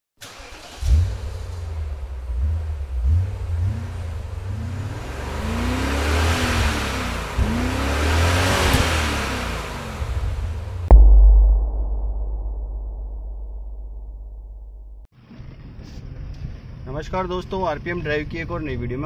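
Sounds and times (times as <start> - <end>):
car engine revving: 0.2 - 11.0
rush of noise: 10.9 - 15.0.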